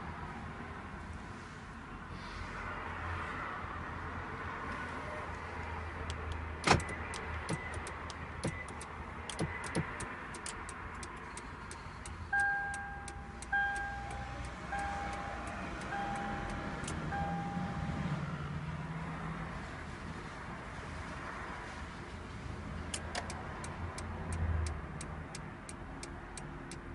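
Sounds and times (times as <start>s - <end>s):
sharp clicks: 6.0s - 15.9s
electronic beeps: 12.4s - 18.0s.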